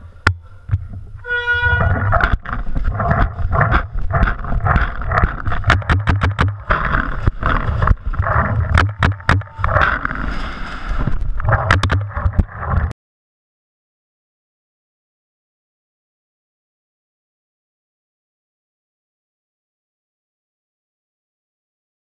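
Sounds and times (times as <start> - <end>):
handling and movement noise: 0.0 - 12.9.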